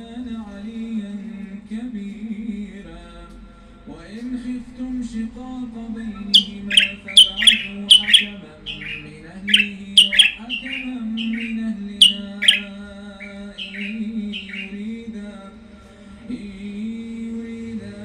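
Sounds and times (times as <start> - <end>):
songbird chirping: 6.2 - 15.0
low background drone: 6.3 - 15.0.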